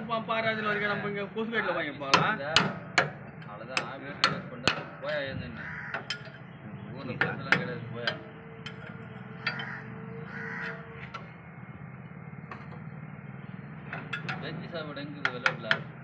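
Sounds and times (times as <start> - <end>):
steady low hum: 0.0 - 16.0
metal knocks and taps: 2.1 - 5.2, 5.9 - 6.5, 7.1 - 11.4, 12.5 - 12.9, 13.8 - 16.0.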